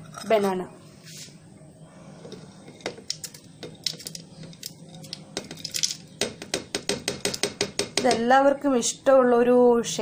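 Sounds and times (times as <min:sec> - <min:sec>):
utensils clinking against dishes: 0:00.0 - 0:00.6.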